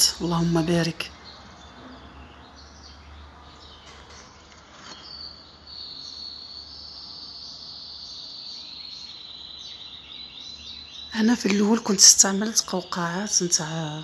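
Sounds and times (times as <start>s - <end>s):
high-pitched insect trill: 3.0s - 11.2s.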